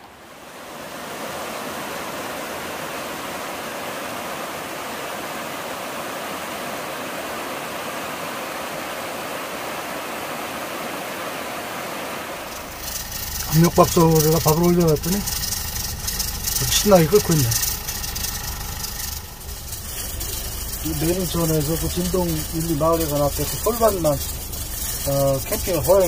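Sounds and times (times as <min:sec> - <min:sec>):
stream rushing over rocks: 0:00.0 - 0:14.1.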